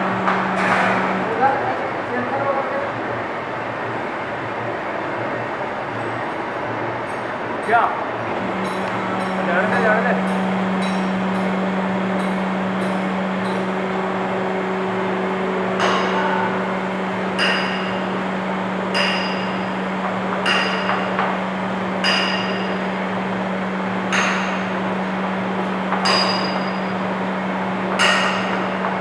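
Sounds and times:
electric hum of hydraulic power pack: 0:08.1 - 0:29.0.

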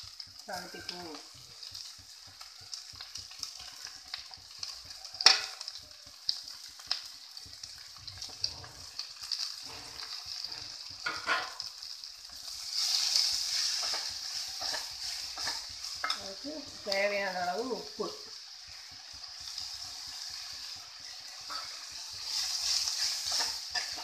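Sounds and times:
vegetables sizzling in hot oil: 0:00.0 - 0:24.0
steel clinking against pan: 0:05.2 - 0:05.6
spoon scraping a pan: 0:05.2 - 0:05.8, 0:08.2 - 0:11.7, 0:12.4 - 0:16.4, 0:18.7 - 0:24.0.

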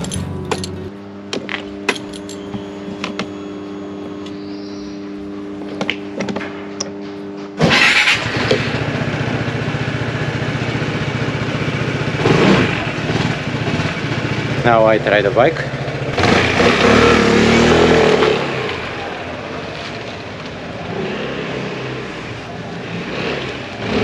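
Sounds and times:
scooter engine idling: 0:00.0 - 0:17.6.

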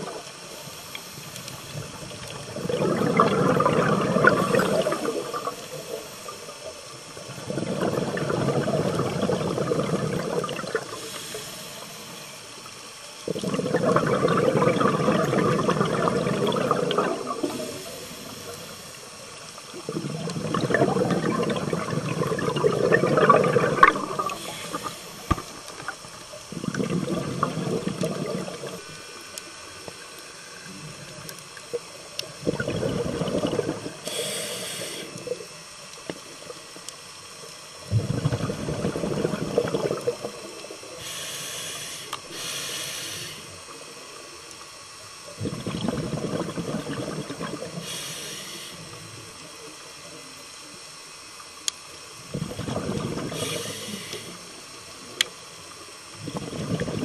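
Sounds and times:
bubbling exhaled air underwater: 0:00.0 - 0:44.2, 0:45.2 - 0:49.6, 0:52.0 - 0:57.0
regulator hissing: 0:10.7 - 0:12.9, 0:23.7 - 0:26.4, 0:34.0 - 0:36.4, 0:40.3 - 0:44.3, 0:47.7 - 0:49.2, 0:53.2 - 0:55.8.

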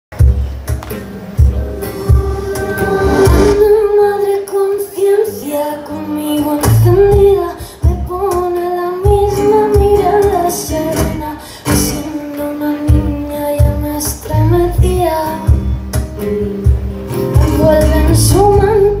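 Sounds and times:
woman singing slow song: 0:01.8 - 0:15.9, 0:17.1 - 0:19.0
strummed acoustic guitar: 0:05.5 - 0:19.0.

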